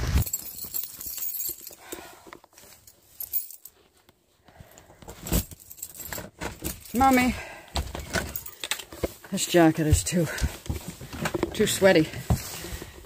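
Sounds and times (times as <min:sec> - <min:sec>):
keys jangling: 0:00.1 - 0:03.8, 0:05.3 - 0:07.4, 0:08.2 - 0:08.9.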